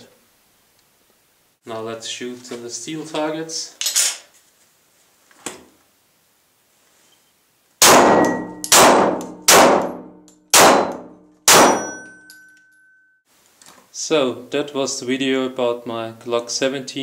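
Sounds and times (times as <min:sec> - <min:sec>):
pistol shots: 0:07.8 - 0:12.1
steel targets ringing: 0:08.0 - 0:09.2, 0:09.8 - 0:13.2.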